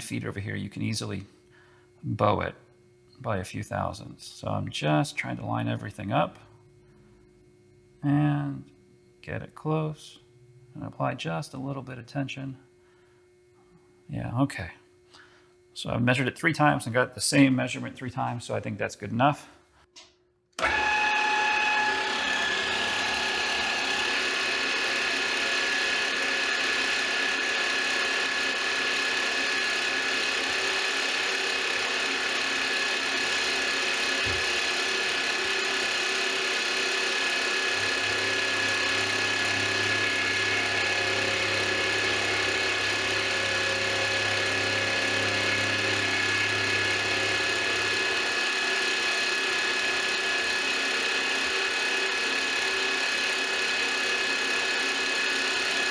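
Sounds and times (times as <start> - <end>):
end mill cutting metal: 20.6 - 55.9
milling spindle whine: 20.6 - 55.9.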